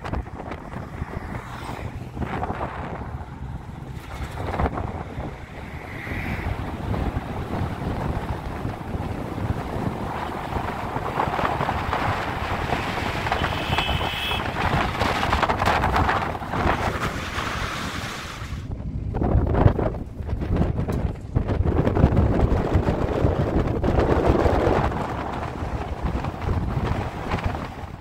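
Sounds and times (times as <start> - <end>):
car rumbling on road: 0.0 - 28.0
wind buffeting microphone: 0.0 - 28.0.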